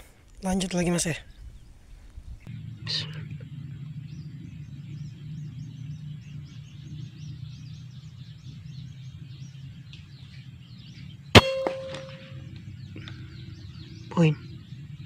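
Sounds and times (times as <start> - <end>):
low steady rumble: 0.2 - 15.0
air rifle shot: 11.4 - 12.4
metallic ring: 11.4 - 12.5.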